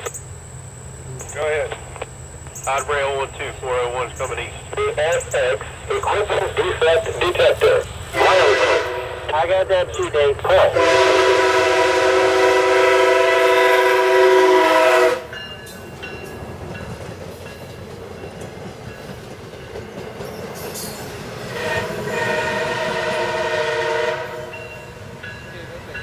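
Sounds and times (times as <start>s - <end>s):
locomotive horn chord: 7.6s - 9.7s, 10.6s - 15.4s, 21.5s - 25.1s
train cars clattering on rails: 15.2s - 23.6s, 24.4s - 26.0s.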